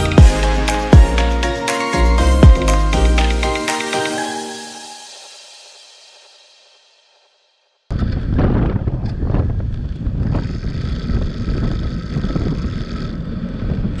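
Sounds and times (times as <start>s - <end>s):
wheel rolling rumble: 7.9s - 14.0s
wind buffeting microphone: 7.9s - 14.0s.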